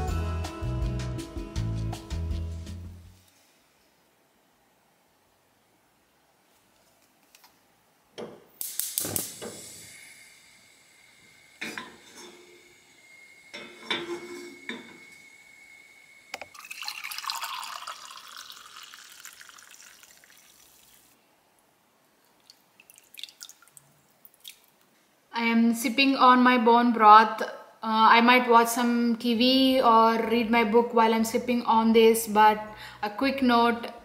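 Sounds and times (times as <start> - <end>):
broth pouring into mug: 9.2 - 21.2, 22.4 - 24.6.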